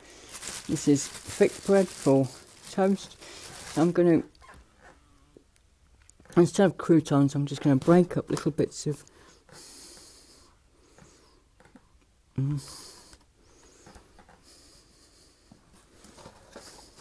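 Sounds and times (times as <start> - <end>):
bread tearing rustles: 0.0 - 4.4.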